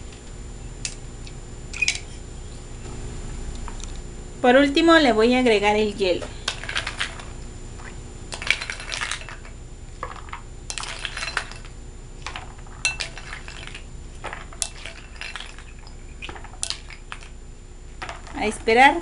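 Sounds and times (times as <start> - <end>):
ice cubes clinking against glass: 8.4 - 9.5, 10.7 - 11.7, 12.3 - 13.8, 14.6 - 17.2.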